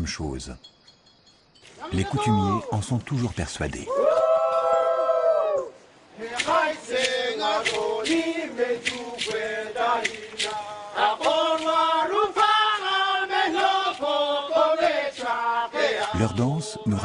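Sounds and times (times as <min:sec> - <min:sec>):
men chanting together: 0:06.1 - 0:17.0.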